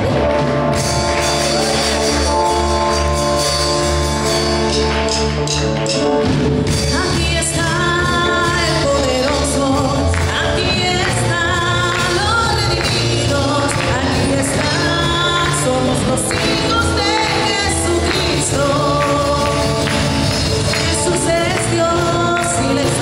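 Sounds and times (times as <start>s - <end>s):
worship music chords and bass: 0.0s - 23.0s
person singing: 6.8s - 23.0s.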